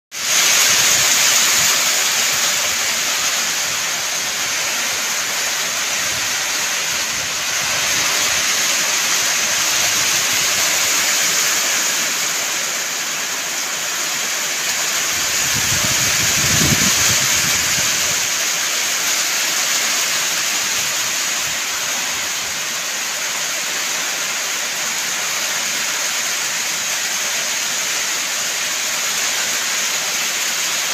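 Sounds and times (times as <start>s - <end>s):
rain on a corrugated roof: 0.1s - 30.9s
water streaming off roof: 0.1s - 30.9s.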